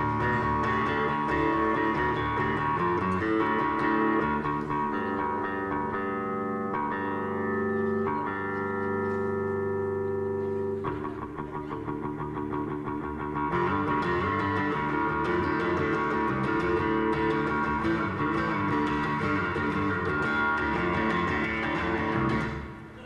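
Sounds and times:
strummed guitar with bass: 0:00.0 - 0:23.0.

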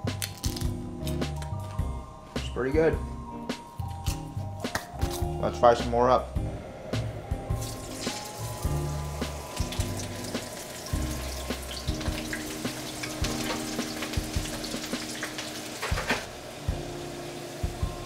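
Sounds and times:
background music: 0:00.0 - 0:18.0
slices sizzling in hot oil: 0:07.6 - 0:17.8.

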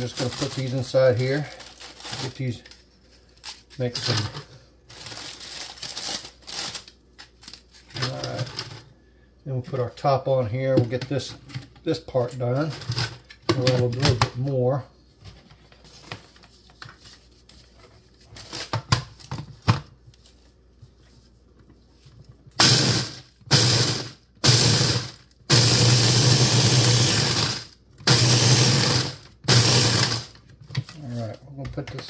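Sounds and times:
electric food chopper grinding: 0:22.6 - 0:30.4.

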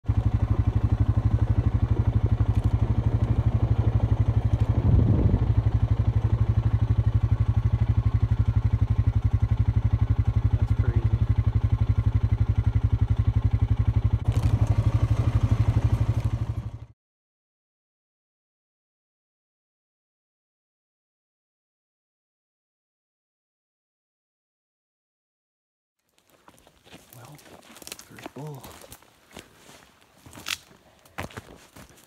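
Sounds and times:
vehicle engine throbbing: 0:00.0 - 0:17.0.

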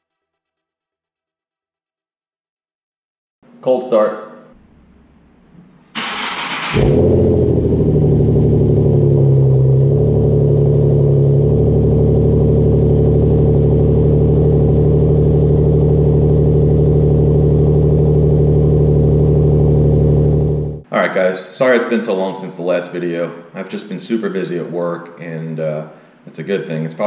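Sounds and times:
starter motor cranking: 0:06.0 - 0:07.3
car engine revving and idling: 0:06.0 - 0:20.9.

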